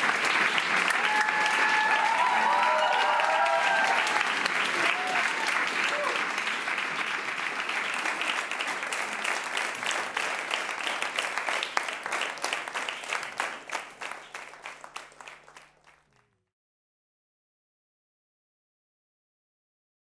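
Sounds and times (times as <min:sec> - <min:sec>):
audience applauding: 0:00.0 - 0:16.4.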